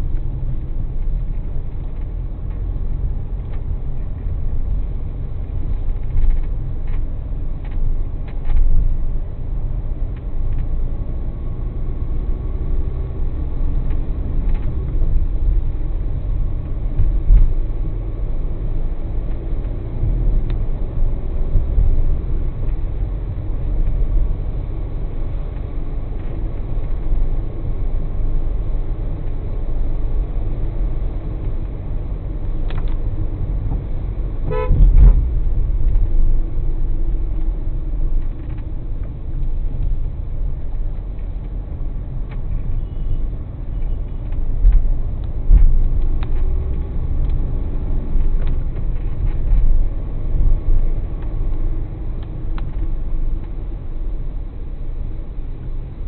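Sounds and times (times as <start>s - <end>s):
car driving on wet road: 0.0s - 56.0s
car horn toot: 34.5s - 35.0s.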